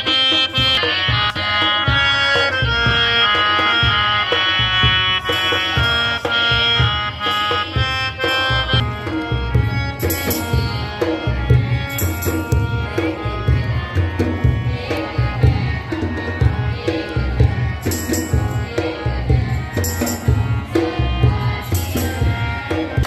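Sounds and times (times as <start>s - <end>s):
regular drum beats: 0.0s - 23.0s.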